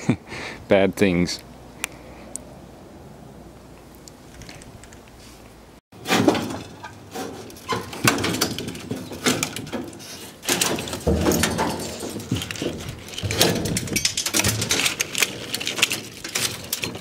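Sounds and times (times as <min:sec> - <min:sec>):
sheet-steel panels clanking and rattling: 0:06.0 - 0:17.0.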